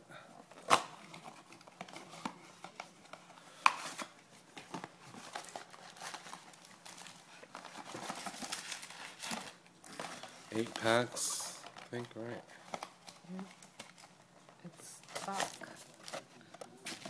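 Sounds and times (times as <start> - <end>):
cardboard rustling and scraping: 1.0 - 11.0.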